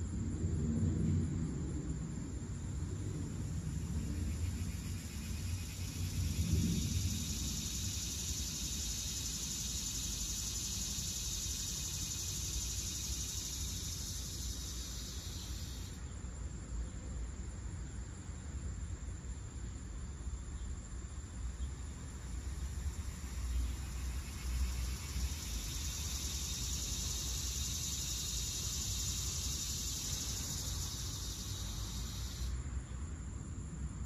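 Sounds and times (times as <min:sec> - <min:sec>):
cicadas buzzing: 0:02.9 - 0:16.2, 0:20.6 - 0:33.4.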